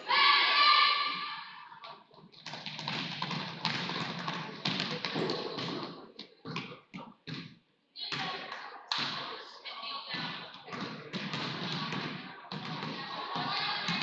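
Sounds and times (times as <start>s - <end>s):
basketball bouncing: 2.3s - 9.3s, 10.1s - 14.0s.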